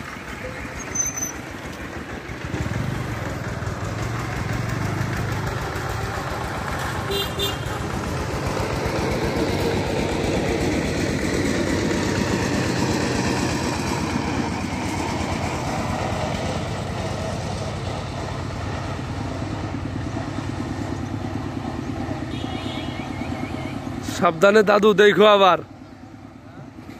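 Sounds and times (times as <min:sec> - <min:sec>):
small engine running: 0:00.0 - 0:23.8.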